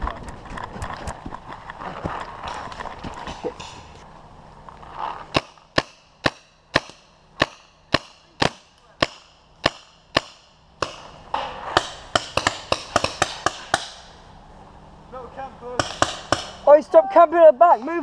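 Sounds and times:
paintball marker firing: 0:05.3 - 0:14.2, 0:15.8 - 0:16.6.

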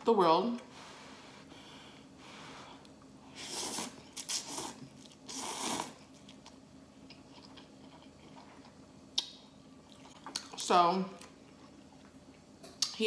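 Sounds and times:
slurping noodles: 0:03.3 - 0:06.1
chewing with wet clicks: 0:06.1 - 0:13.0.

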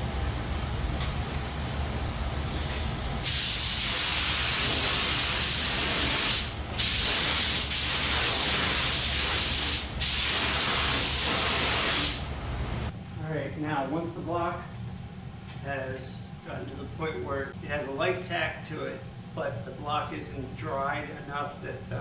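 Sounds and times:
paint spray gun hissing: 0:03.2 - 0:12.3.

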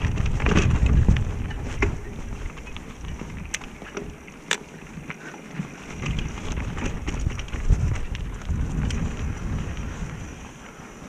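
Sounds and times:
bike clicks and rattles: 0:00.0 - 0:11.0
bike tyres rumbling on dirt: 0:00.0 - 0:11.0
wind buffeting microphone: 0:00.0 - 0:11.0.

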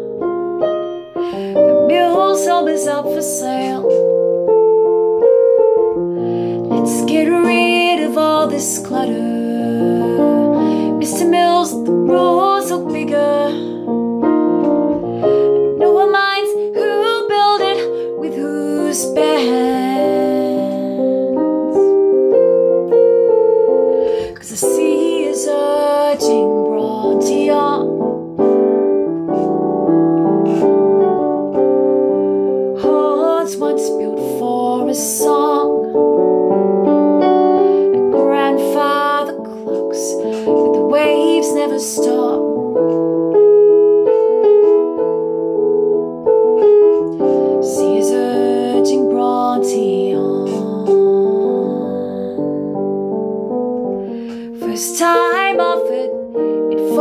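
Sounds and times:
piano: 0:00.0 - 0:57.0
woman singing: 0:01.3 - 0:04.2, 0:06.6 - 0:13.9, 0:15.2 - 0:21.8, 0:24.1 - 0:28.2, 0:32.7 - 0:36.5, 0:37.8 - 0:42.8, 0:46.6 - 0:53.1, 0:54.3 - 0:57.0.

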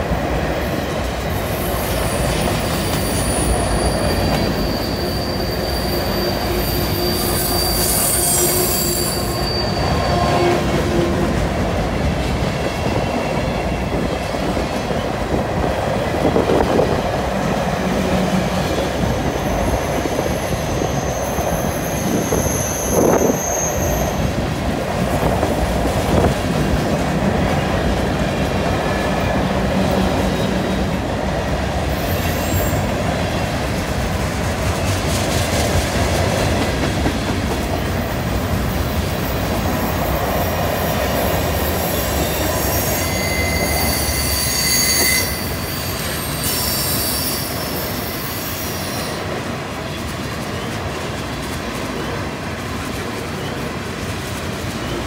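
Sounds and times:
high wheel squeals: 0:01.4 - 0:11.0, 0:17.5 - 0:24.5, 0:31.9 - 0:33.0, 0:39.4 - 0:49.3.

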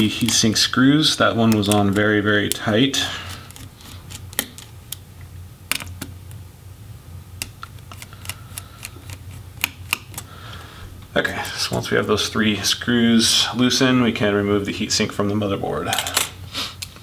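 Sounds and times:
screwdriver clicking on screws: 0:01.4 - 0:02.7.

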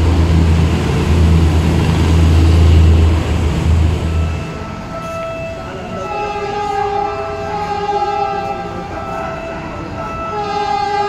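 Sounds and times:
train horn blasts: 0:04.2 - 0:11.0.

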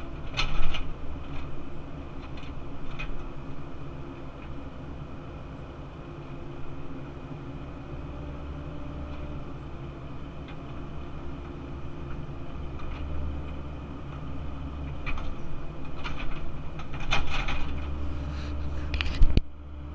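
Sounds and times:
excavator diesel engine running: 0:00.0 - 0:19.9
metallic clanks and rattles: 0:14.9 - 0:18.0.

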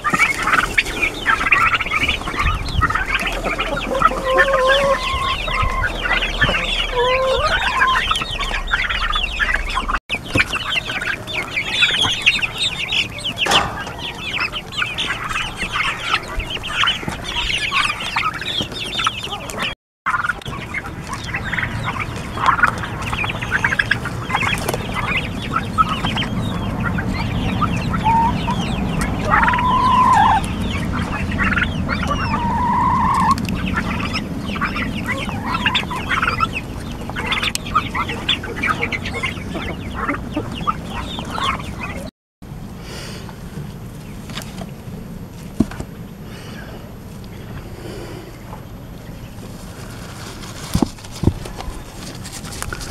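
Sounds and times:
turkey whistled calls: 0:00.0 - 0:42.1
young turkeys chirping and peeping: 0:00.0 - 0:42.1, 0:42.9 - 0:52.9.

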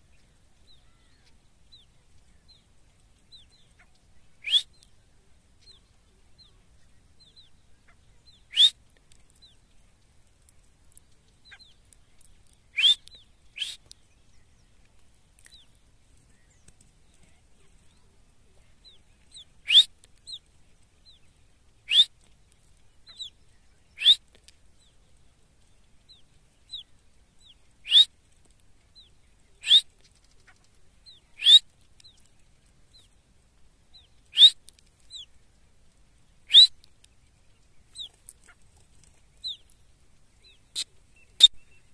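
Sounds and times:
faint chirps: 0:00.0 - 0:09.9, 0:10.6 - 0:28.2, 0:29.0 - 0:33.2, 0:33.9 - 0:35.4, 0:36.4 - 0:41.9
francolin calling: 0:03.7 - 0:04.9, 0:07.8 - 0:08.8, 0:12.7 - 0:13.9, 0:19.3 - 0:20.4, 0:21.9 - 0:22.1, 0:24.0 - 0:24.3, 0:27.8 - 0:28.1, 0:29.6 - 0:29.9, 0:31.1 - 0:31.7, 0:34.0 - 0:35.3, 0:36.5 - 0:36.9.

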